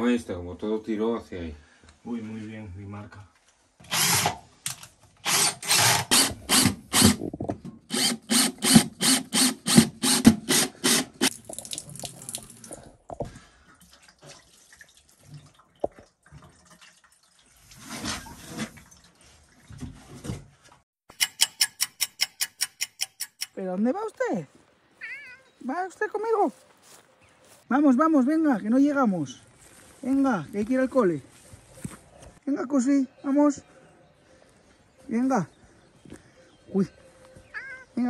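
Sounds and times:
cordless drill bursts: 0:03.8 - 0:04.4, 0:05.2 - 0:07.2, 0:07.9 - 0:11.3
water splashing onto shower tray: 0:11.3 - 0:12.8.

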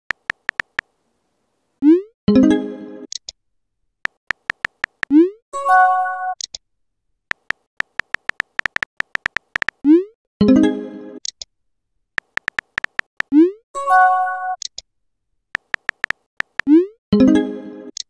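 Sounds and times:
keyboard tap clicks: 0:00.1 - 0:00.9, 0:04.1 - 0:05.1, 0:07.3 - 0:09.8, 0:12.2 - 0:13.3, 0:15.6 - 0:16.7.

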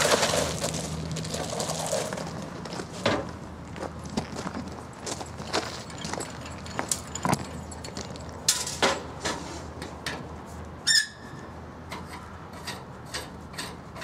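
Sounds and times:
short high squeak: 0:10.8 - 0:11.5.

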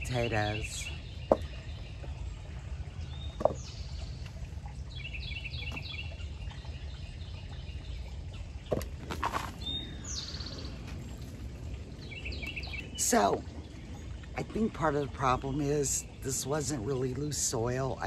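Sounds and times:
songbirds chirping: 0:00.0 - 0:18.0
hands rustling and scraping soil: 0:08.8 - 0:10.0.

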